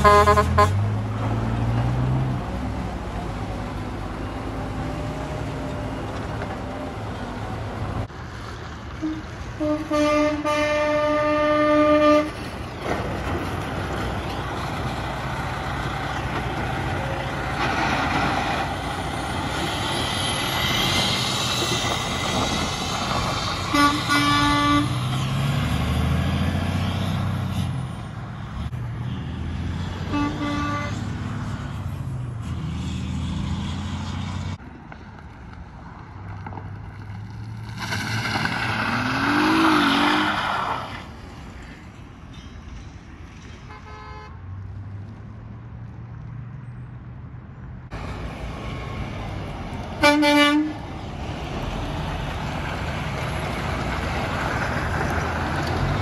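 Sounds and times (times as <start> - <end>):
truck horn blasts: 0.0 - 0.9, 9.0 - 12.4, 23.7 - 25.0, 30.0 - 31.1, 43.7 - 44.4, 50.0 - 50.8
tyres on gravel: 11.4 - 24.2, 34.9 - 41.7
diesel engine driving off: 12.5 - 27.5.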